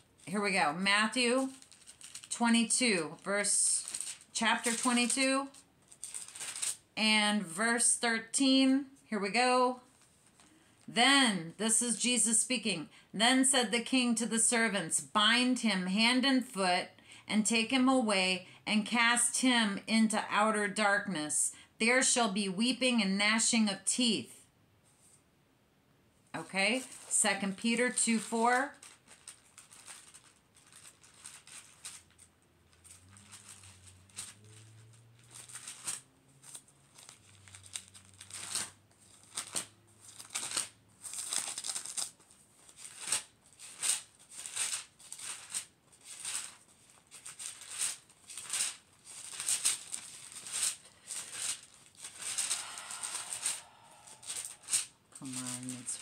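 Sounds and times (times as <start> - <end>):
pages being leafed through: 1.2 - 2.3, 5.9 - 6.8, 28.1 - 56.0.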